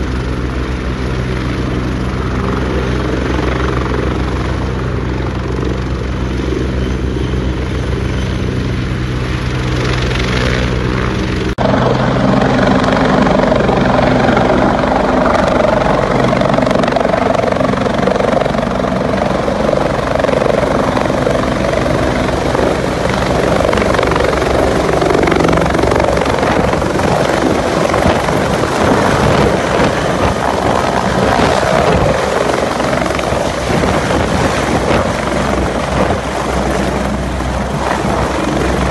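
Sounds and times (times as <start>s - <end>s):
helicopter rotor and turbines: 0.0s - 38.9s.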